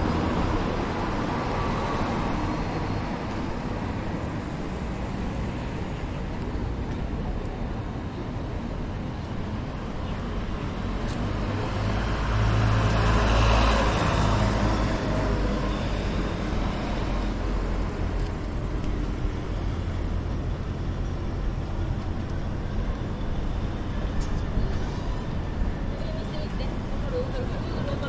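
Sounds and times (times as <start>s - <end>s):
traffic noise: 0.0s - 28.0s.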